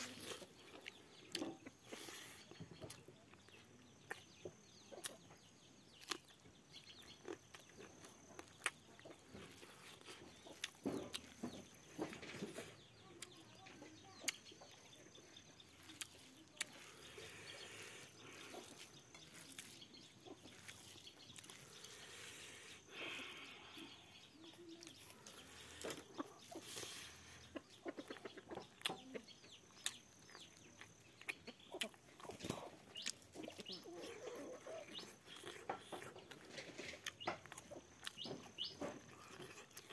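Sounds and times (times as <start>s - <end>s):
chewing and mouth clicks: 0.0s - 23.2s, 24.5s - 39.9s
faint chickens clucking: 0.0s - 39.9s
fingers mixing rice on plate: 15.8s - 23.2s.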